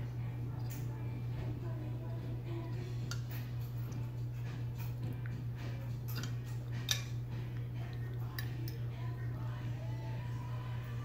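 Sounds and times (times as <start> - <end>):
low hum: 0.0 - 11.0
fork clicking on metal plate: 6.1 - 7.1.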